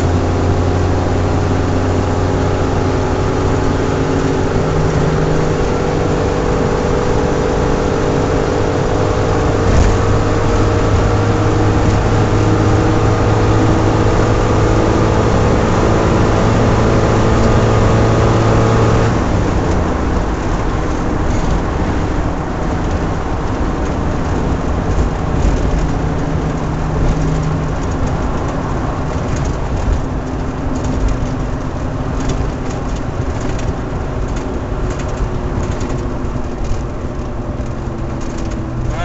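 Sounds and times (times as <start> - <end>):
car engine running hard: 0.0 - 39.0.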